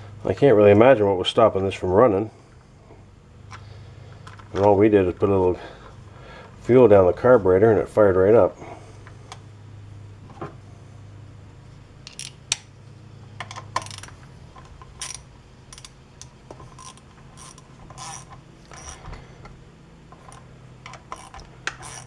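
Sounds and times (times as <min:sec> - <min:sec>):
tool clicking and scraping on plastic: 0:20.2 - 0:22.0.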